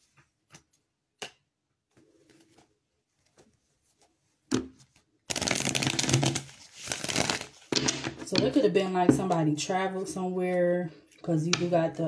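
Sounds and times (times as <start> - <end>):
cards shuffling: 4.5 - 8.2.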